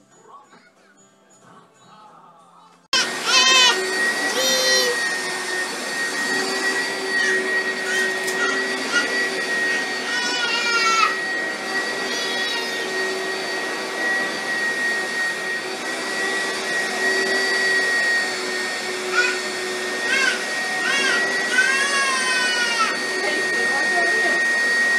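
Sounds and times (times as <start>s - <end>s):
toddler squealing: 3.0s - 5.4s, 7.0s - 13.2s, 19.0s - 23.1s
vacuum cleaner running: 3.0s - 24.9s.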